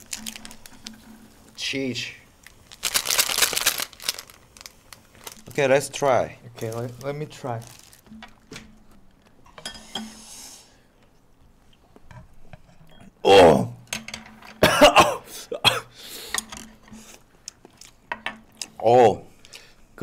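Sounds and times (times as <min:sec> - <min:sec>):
utensils scraping in frying pan: 0:09.5 - 0:10.8
man coughing: 0:14.6 - 0:16.0.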